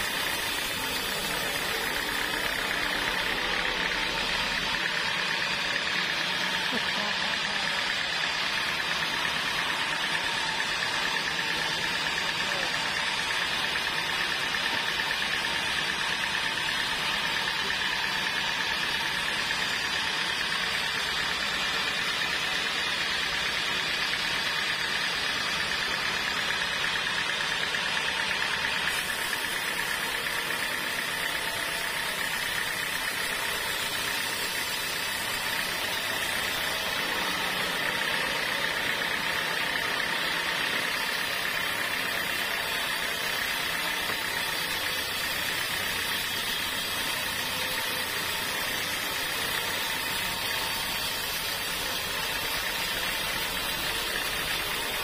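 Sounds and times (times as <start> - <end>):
band sawmill cutting log: 0.0 - 55.0.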